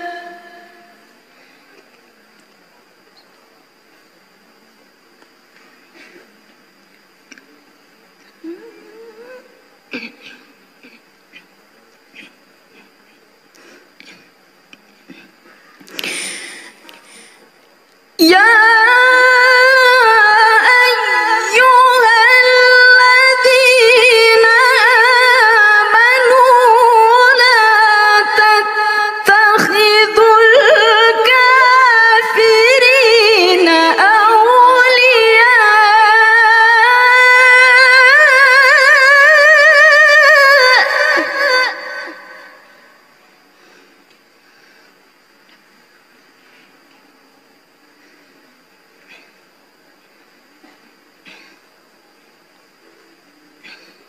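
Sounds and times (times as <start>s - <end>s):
woman reciting melodically: 0.0s - 1.2s, 18.2s - 43.0s.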